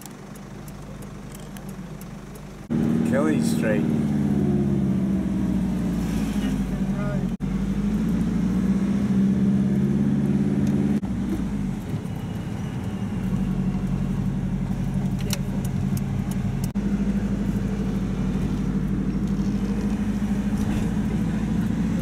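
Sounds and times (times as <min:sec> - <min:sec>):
sharp clicks: 0:00.0 - 0:03.0
car engine hum: 0:00.0 - 0:22.0
road noise: 0:00.0 - 0:22.0.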